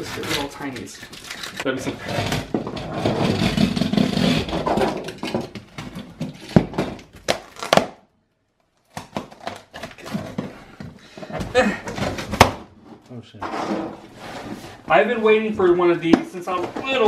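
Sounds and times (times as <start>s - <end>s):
tape and cardboard scraping: 0.0s - 6.6s.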